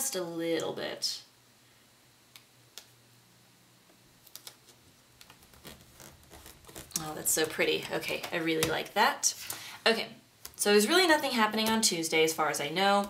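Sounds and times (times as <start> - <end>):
soft paper rustling: 4.2 - 9.6.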